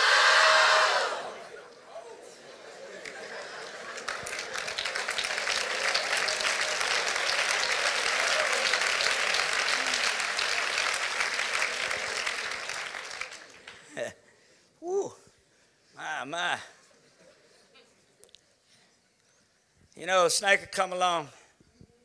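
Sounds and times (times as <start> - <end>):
congregation applauding: 2.9 - 14.0.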